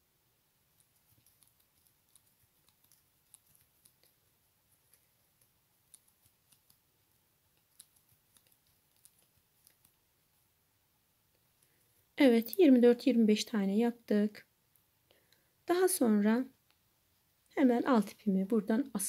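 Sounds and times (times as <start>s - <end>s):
tatting shuttle small clicks: 0.7s - 10.0s.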